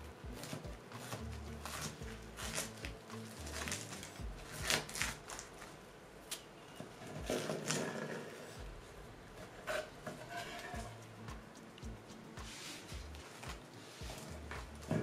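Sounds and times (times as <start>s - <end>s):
knife crunching through pastry: 0.4s - 5.6s.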